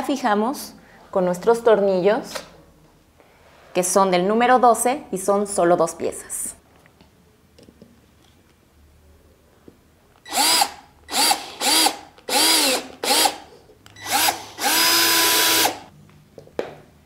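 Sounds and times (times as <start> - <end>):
cordless drill whining: 10.2 - 15.9.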